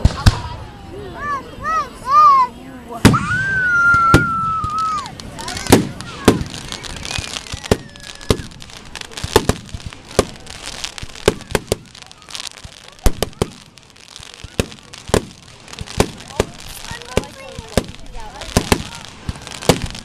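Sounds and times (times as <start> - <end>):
firework shells bursting: 3.8 - 20.0.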